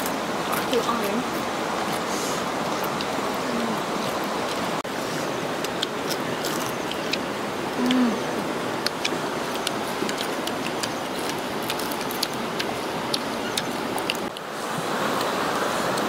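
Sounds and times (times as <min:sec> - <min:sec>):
steady hiss: 0:00.0 - 0:16.0
crunching of crickets being chewed: 0:02.8 - 0:08.0, 0:08.7 - 0:14.4
person humming mmm: 0:07.8 - 0:08.5.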